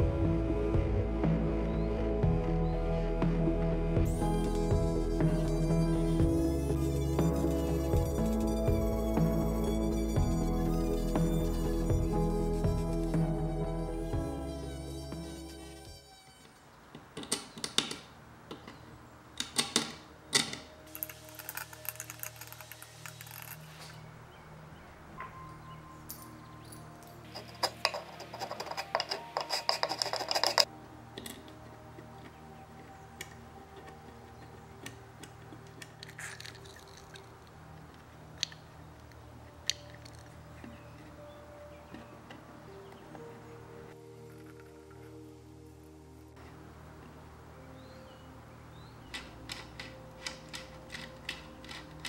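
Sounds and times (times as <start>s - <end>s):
metal pick clicking and scraping: 27.2s - 37.3s, 49.1s - 52.0s
wire pick clicking in lock: 49.1s - 52.0s.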